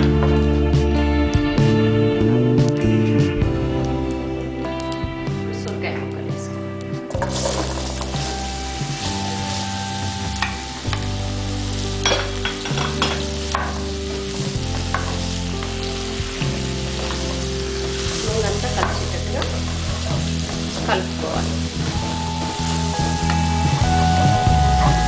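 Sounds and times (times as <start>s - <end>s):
vegetables sizzling in hot oil: 7.1s - 25.0s
spatula knocking and scraping pan: 12.1s - 13.9s.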